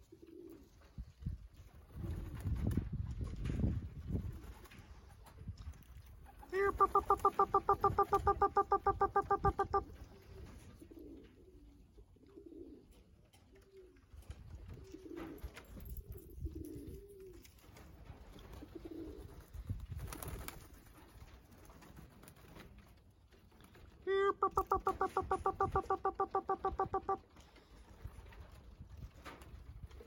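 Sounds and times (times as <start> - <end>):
pigeons cooing: 0.0 - 0.8, 6.4 - 14.1, 18.5 - 19.4, 24.1 - 27.4.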